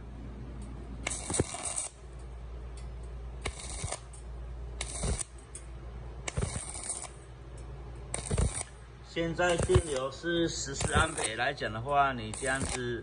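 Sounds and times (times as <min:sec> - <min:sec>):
welding arc crackling and hissing: 0:01.0 - 0:02.0, 0:03.4 - 0:04.2, 0:04.8 - 0:05.4, 0:06.3 - 0:07.2, 0:08.1 - 0:13.0.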